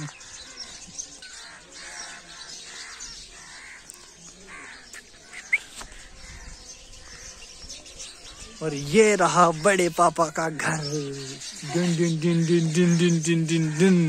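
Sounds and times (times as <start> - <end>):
crows cawing: 0.0 - 4.9, 9.9 - 11.5.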